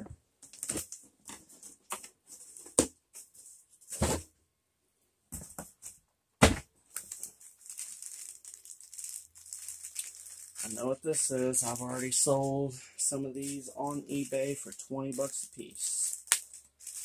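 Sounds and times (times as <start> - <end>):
cardboard rustling and scraping: 0.6 - 4.3.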